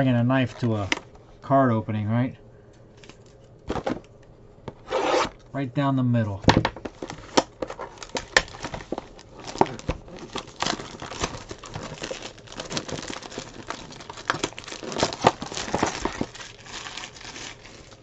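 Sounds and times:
plastic wrap crinkling and tearing: 6.8 - 18.0.

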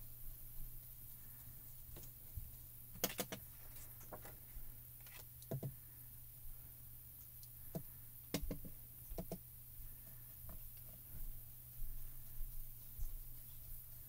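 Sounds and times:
brush tapping on ink pad and paper: 7.7 - 11.3.

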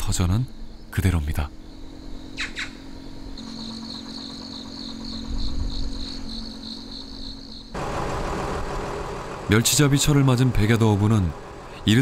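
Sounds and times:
insect trilling: 0.1 - 7.8
boat engine running: 3.4 - 12.0.

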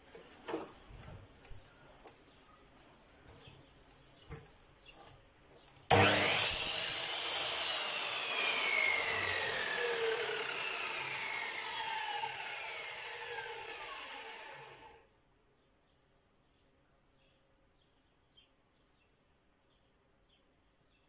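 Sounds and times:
miter saw spinning down: 5.9 - 15.0.

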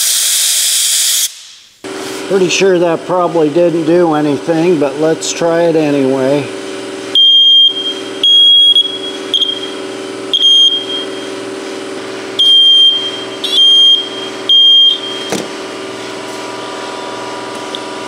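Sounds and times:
smoke detector beeps: 7.1 - 11.3, 12.4 - 15.4.

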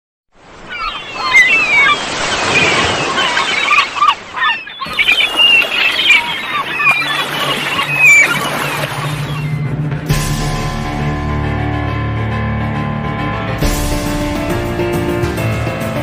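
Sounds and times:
surf washing: 0.4 - 10.0
gulls calling: 0.4 - 10.1.

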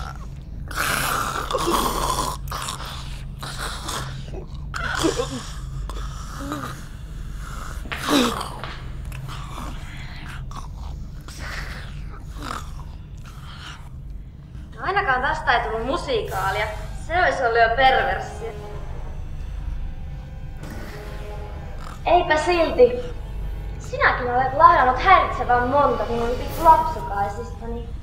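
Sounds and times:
steady low drone: 0.0 - 28.0.

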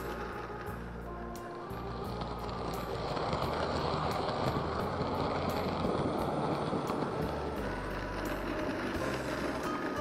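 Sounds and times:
model train rattling on rails: 0.0 - 10.0.

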